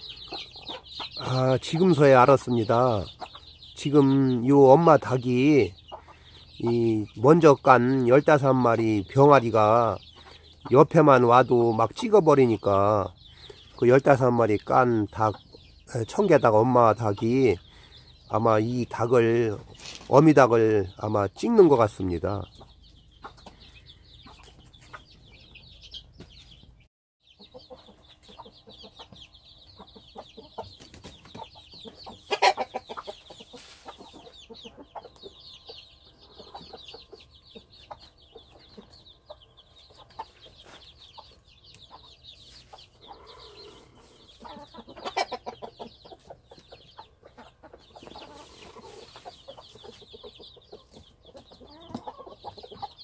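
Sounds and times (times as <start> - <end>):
chicks peeping: 0.0 - 53.0
hen clucking low: 31.4 - 35.3, 42.8 - 53.0.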